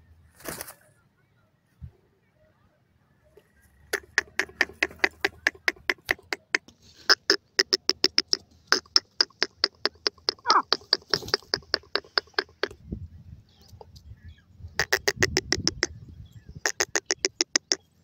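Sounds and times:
bird calling in sharp clicking notes: 3.8s - 12.8s, 14.8s - 16.0s, 16.6s - 17.9s.

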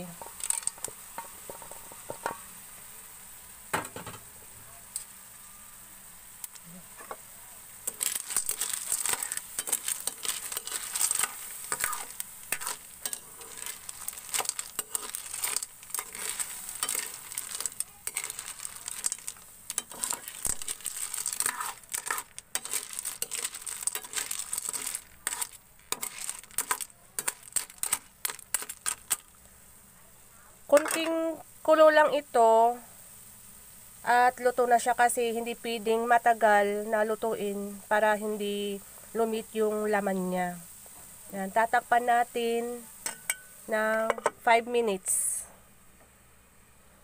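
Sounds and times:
snail shells clattering in a wok: 0.0s - 2.4s, 7.8s - 29.4s
sizzling in a pan: 0.0s - 47.0s.

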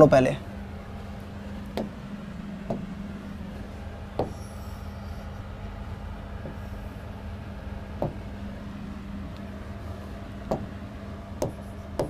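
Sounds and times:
low electrical hum: 0.0s - 12.0s
pen tapping on display board: 4.2s - 4.4s, 10.5s - 10.8s, 11.4s - 12.0s.

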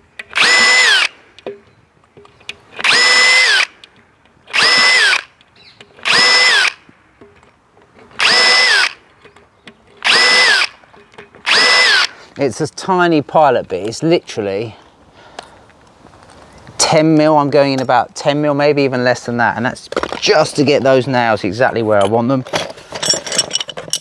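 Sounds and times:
cordless drill drilling into wood: 0.3s - 1.2s, 2.8s - 3.8s, 4.5s - 5.3s, 6.0s - 6.8s, 8.2s - 9.0s, 10.0s - 10.8s, 11.4s - 12.2s.

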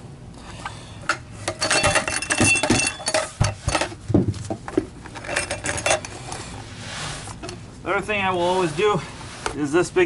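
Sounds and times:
metal parts clinking and clattering: 1.1s - 4.0s, 5.1s - 6.4s.

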